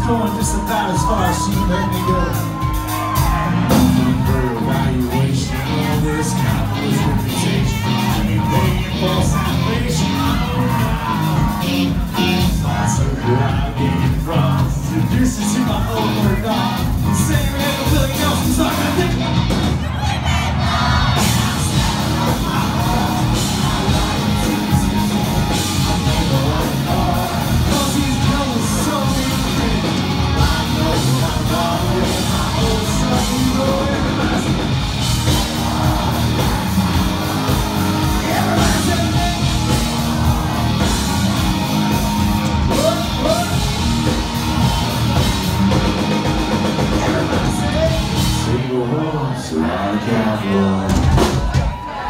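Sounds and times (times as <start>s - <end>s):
country-rock band playing loudly: 0.0s - 52.0s
voices singing and shouting: 0.0s - 52.0s.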